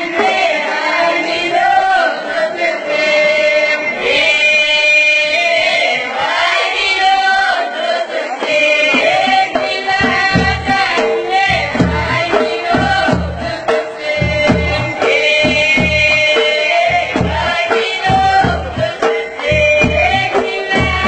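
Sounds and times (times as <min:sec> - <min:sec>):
voices singing together: 0:00.0 - 0:21.0
low frame drum strokes: 0:09.0 - 0:21.0.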